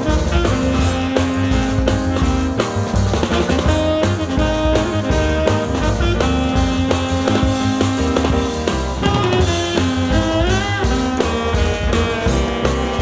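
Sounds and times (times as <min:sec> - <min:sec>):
drums keeping steady beat: 0:00.0 - 0:13.0
held instrumental notes: 0:00.0 - 0:13.0.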